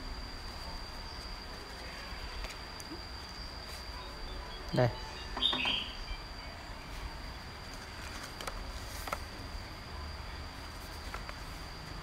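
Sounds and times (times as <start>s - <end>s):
faint high-pitched whine: 0.0s - 12.0s
paper clicks and rustles: 7.6s - 9.3s, 10.7s - 11.6s.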